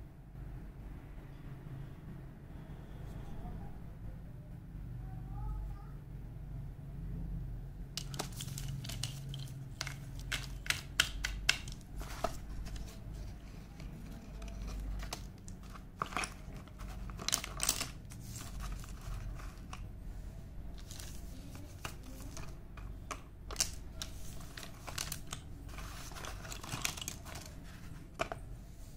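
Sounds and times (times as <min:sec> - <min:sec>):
low steady hum: 0:00.0 - 0:28.9
cardboard box rustling: 0:08.0 - 0:11.0, 0:11.6 - 0:19.8, 0:23.6 - 0:28.4
slate pencils clattering: 0:08.0 - 0:19.9, 0:20.7 - 0:28.5.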